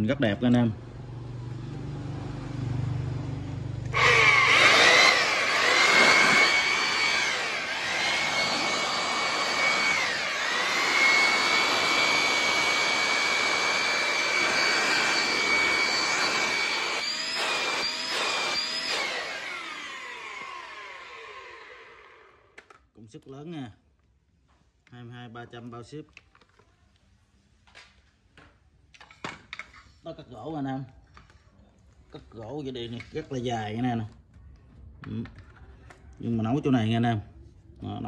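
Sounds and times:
electric blower whining: 3.8s - 22.7s.

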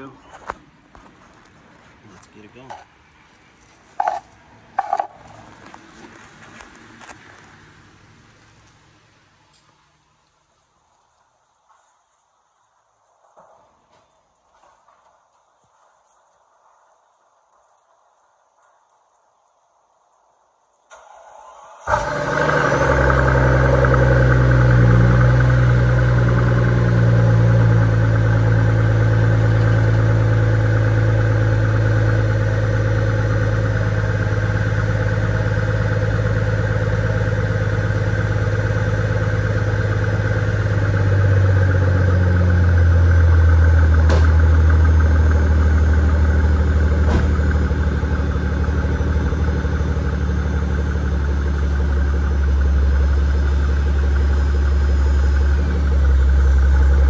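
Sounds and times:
car engine idling: 20.9s - 57.0s.

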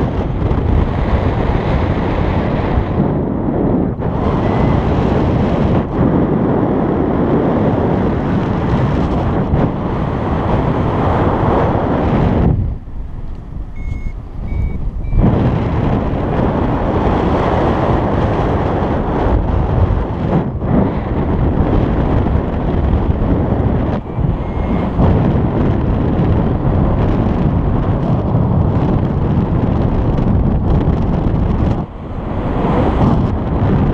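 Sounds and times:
wind rushing over microphone: 0.0s - 33.9s
short high beeps: 13.8s - 15.3s, 24.0s - 25.0s.

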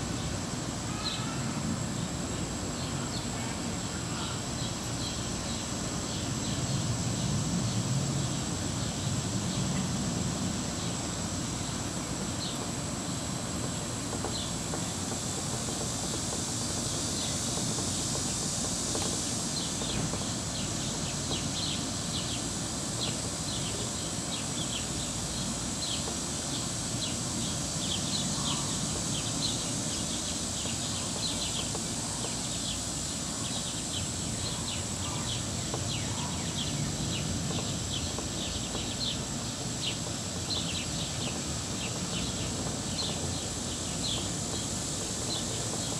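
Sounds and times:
high-pitched insect drone: 10.6s - 45.9s.

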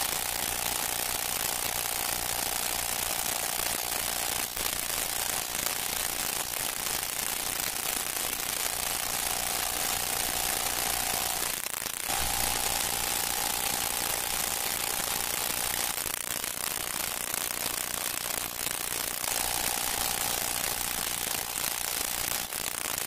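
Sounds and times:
film soundtrack hiss and crackle: 0.0s - 23.0s
faint steady tone: 12.1s - 16.0s.

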